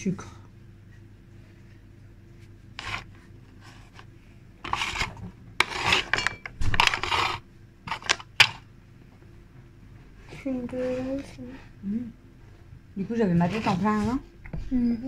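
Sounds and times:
rasping and rustling: 0.9 - 8.6, 13.0 - 14.2.

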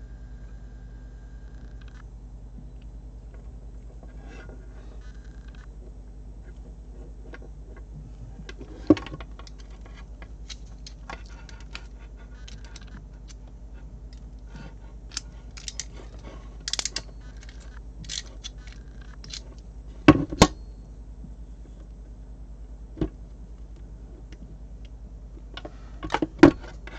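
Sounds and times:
crimping tool clicks: 15.1 - 19.7.

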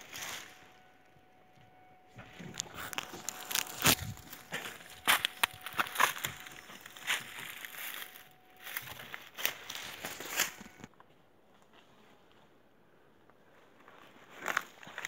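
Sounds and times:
footsteps crunching dry leaves: 0.0 - 0.7, 2.5 - 10.9
branches brushing camera: 2.2 - 10.9.

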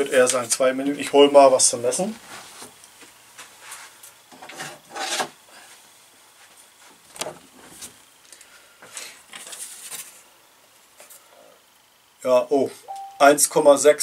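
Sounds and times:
scraping and rustling: 8.8 - 10.3.

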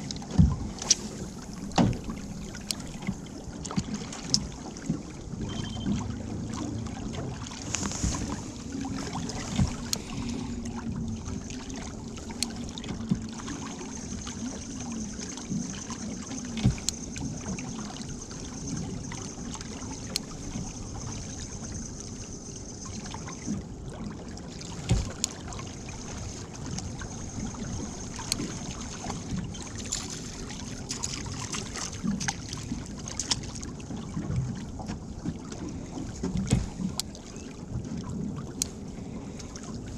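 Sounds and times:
steady low rumble: 0.0 - 39.9
water lapping against hull: 0.0 - 39.9
knocks on boat: 0.3 - 0.8, 1.6 - 3.2, 24.8 - 25.2, 36.2 - 36.9.

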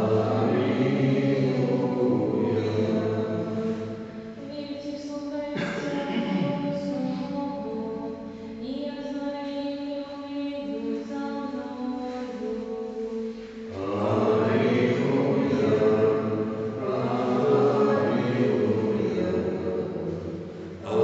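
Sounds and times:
church choir chanting: 0.0 - 3.8, 13.7 - 21.0.

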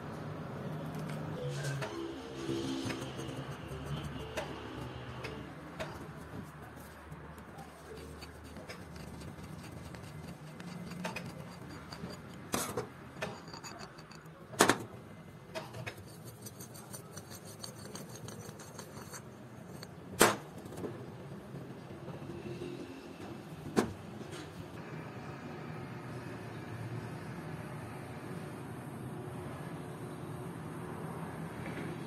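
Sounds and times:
metal screw scraping in tube: 1.5 - 14.4, 15.6 - 20.0.

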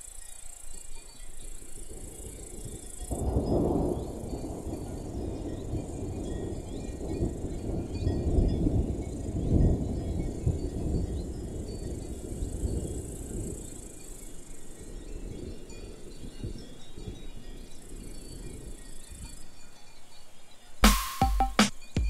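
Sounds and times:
insects chirring: 0.0 - 20.8.

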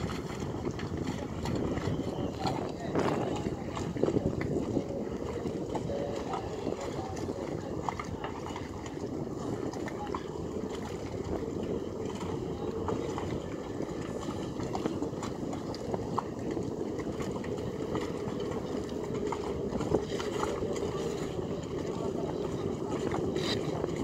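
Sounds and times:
steady low rumble: 0.0 - 24.0.

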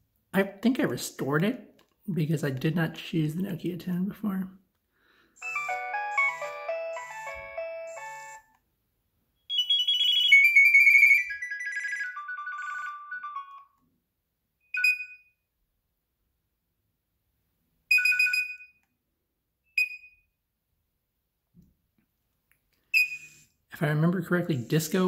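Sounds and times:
descending electronic beeps: 5.4 - 8.4
phone ringtone melody: 5.4 - 8.5, 9.5 - 13.8, 14.7 - 15.2, 17.9 - 18.7.

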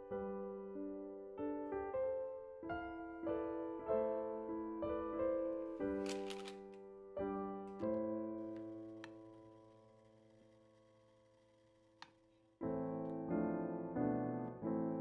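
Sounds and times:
soft solo piano music: 0.0 - 9.4, 12.6 - 15.0.

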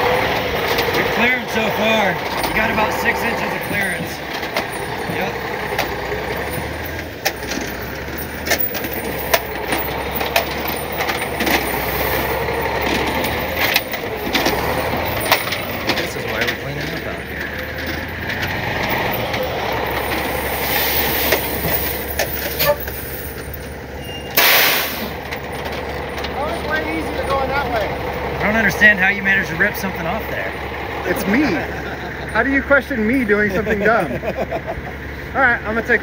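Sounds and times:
chains rattling and clanking: 0.0 - 34.6
diesel engine running: 0.0 - 36.0
brief loud hiss: 24.4 - 25.1.

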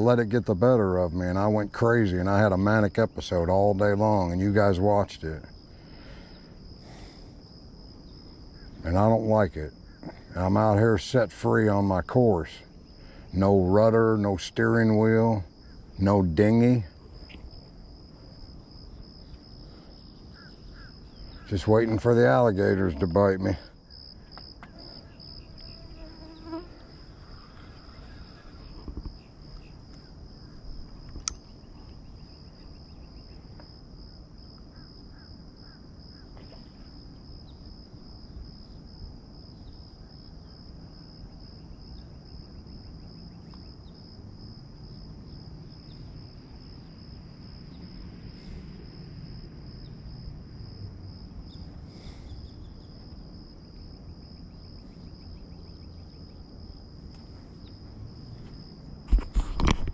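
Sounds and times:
insects chorus pulsing: 0.0 - 59.9
sharp click: 31.1 - 31.5.

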